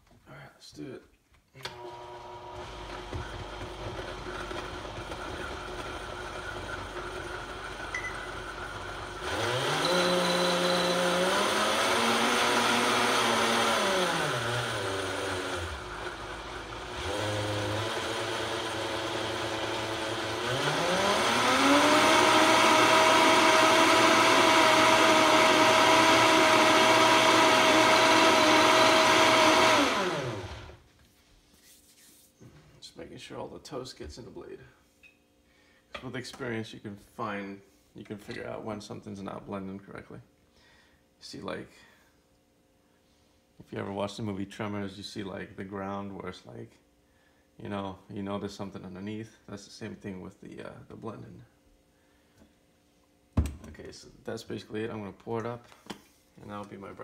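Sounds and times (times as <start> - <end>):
blender blending thick batter: 1.7 - 30.8.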